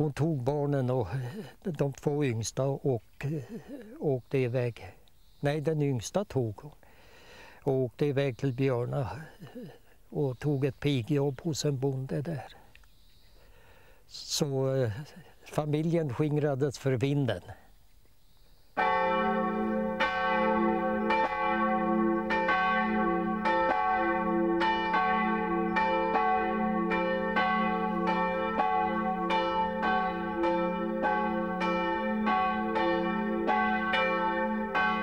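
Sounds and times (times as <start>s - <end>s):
church bells ringing: 18.8s - 35.0s.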